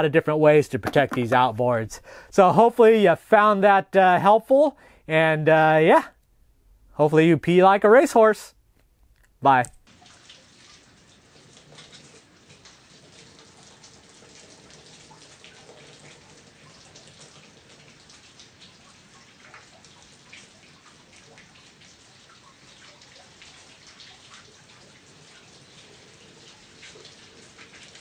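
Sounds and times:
water jet spattering: 0:00.7 - 0:02.2.

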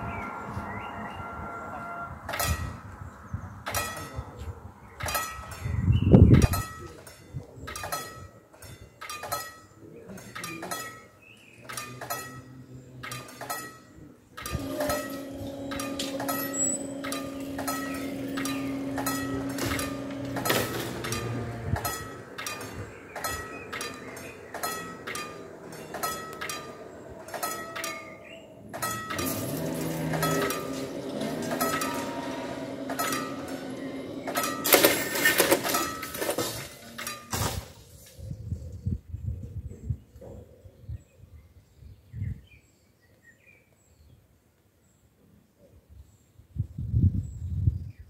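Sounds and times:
level crossing warning bell dinging: 0:00.0 - 0:02.9, 0:14.5 - 0:36.4.

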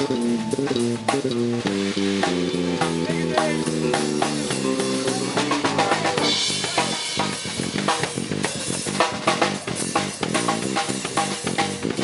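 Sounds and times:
fast drums and cymbals: 0:00.0 - 0:12.0
live rock band playing: 0:00.0 - 0:12.0.

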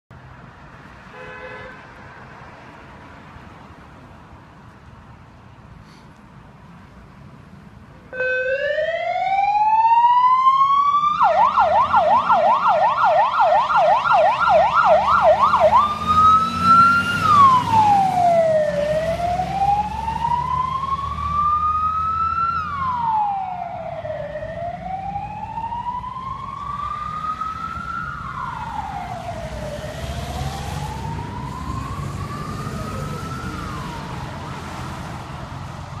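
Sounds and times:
siren wailing and yelping: 0:08.1 - 0:34.5.

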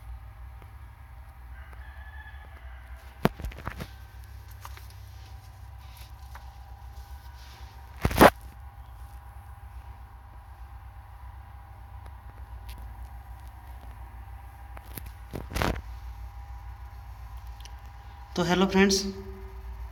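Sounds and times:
steady low hum: 0:00.0 - 0:19.9.

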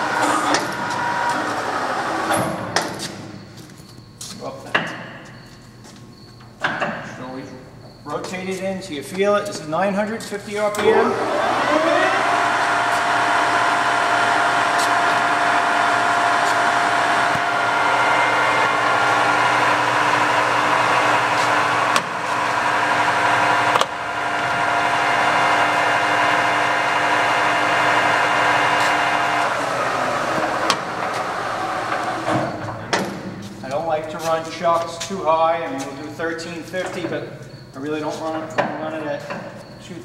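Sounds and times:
lathe spindle whine: 0:00.0 - 0:02.6, 0:10.8 - 0:32.7.

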